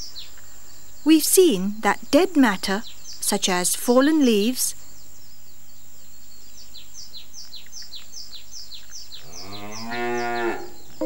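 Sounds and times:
cow mooing: 0:09.3 - 0:10.9.

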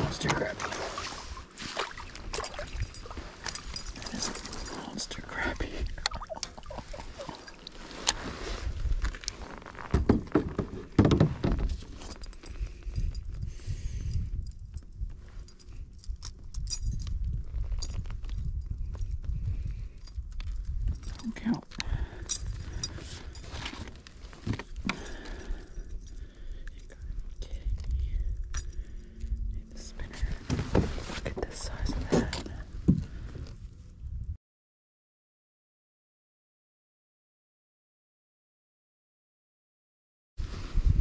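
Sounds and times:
clinks of fishing gear: 0:01.6 - 0:33.2
knocks and thumps against kayak hull: 0:09.9 - 0:11.8
steady low rumble: 0:24.1 - 0:34.4.

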